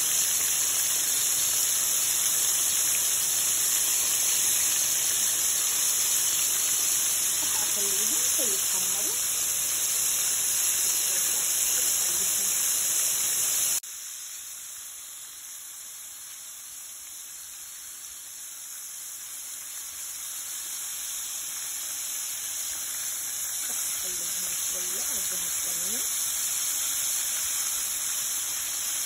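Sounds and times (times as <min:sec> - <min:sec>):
food deep-frying in oil: 0:00.0 - 0:29.0.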